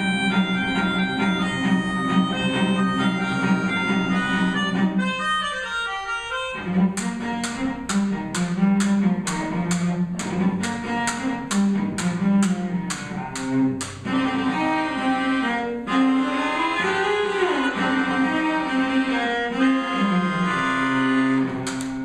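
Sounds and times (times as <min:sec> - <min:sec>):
melodica: 0:00.0 - 0:06.8, 0:17.7 - 0:21.4
cello bowing low bass line: 0:00.0 - 0:22.0
sharp percussive clicks: 0:06.8 - 0:14.0, 0:21.6 - 0:22.0.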